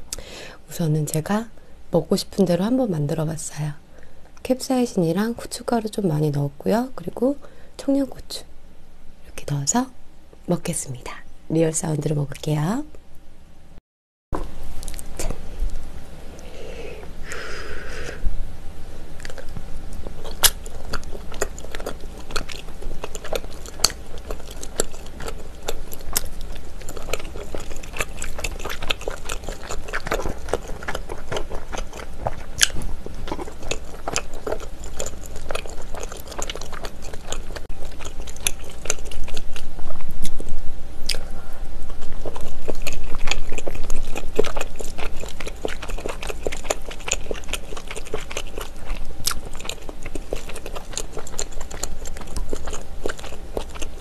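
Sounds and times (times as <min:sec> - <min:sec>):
chewing chewy food: 0:19.2 - 0:54.0.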